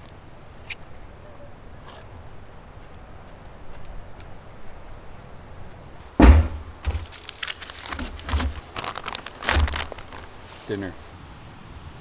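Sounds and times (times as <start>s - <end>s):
faint outdoor ambience: 0.0s - 12.0s
aluminium foil crinkling: 6.8s - 10.8s.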